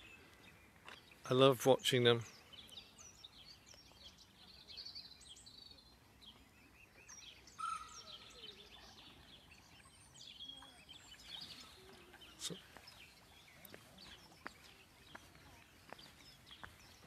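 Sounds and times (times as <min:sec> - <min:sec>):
songbirds chirping: 0:00.0 - 0:17.0.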